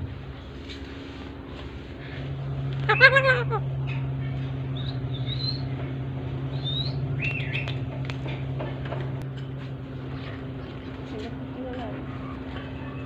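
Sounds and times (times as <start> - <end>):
steady low hum: 0.0 - 13.0
bird chirps: 2.8 - 5.9, 6.5 - 7.8
wavering whistled call: 4.7 - 5.7, 6.5 - 7.8.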